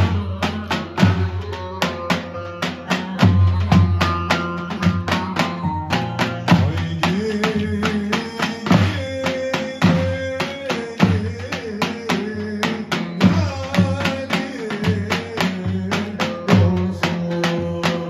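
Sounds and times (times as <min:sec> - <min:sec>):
bass drum beating quick rhythm: 0:00.0 - 0:18.0
wavering melody line: 0:02.2 - 0:07.0.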